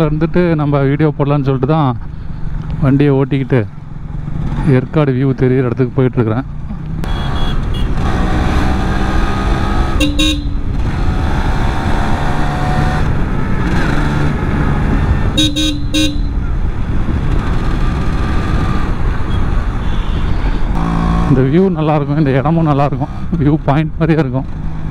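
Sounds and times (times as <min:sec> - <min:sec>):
horn toots: 0:07.0 - 0:08.3, 0:09.8 - 0:11.0, 0:15.3 - 0:16.5, 0:19.2 - 0:20.9
motorcycle engine running: 0:09.5 - 0:12.3, 0:13.1 - 0:21.5.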